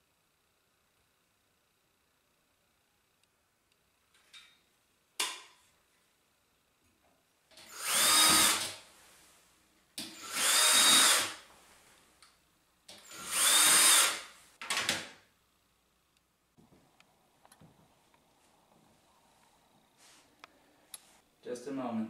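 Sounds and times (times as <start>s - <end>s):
power drill whining: 7.6s - 8.8s, 10.1s - 11.5s, 12.9s - 14.4s.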